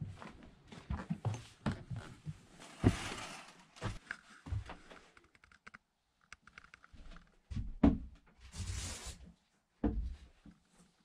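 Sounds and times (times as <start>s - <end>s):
rustling scrape: 2.6s - 4.0s.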